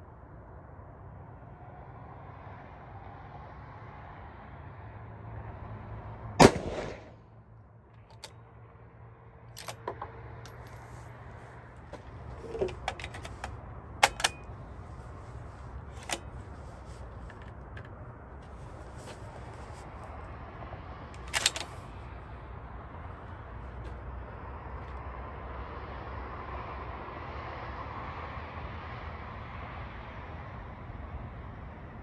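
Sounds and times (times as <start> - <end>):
rifle shot: 6.4 - 7.2
light metallic clicks and clinks: 8.0 - 8.4, 9.5 - 19.8, 21.2 - 21.9.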